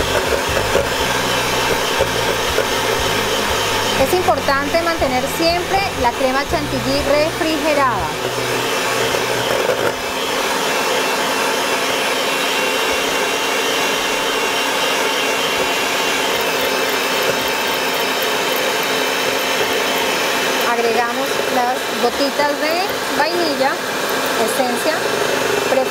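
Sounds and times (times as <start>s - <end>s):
electric hand mixer running: 0.0s - 25.9s.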